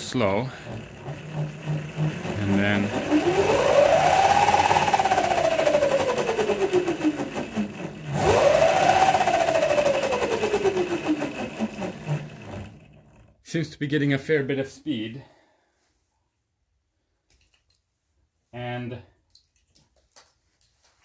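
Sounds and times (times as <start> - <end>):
electric motor whining: 0.0 - 13.3.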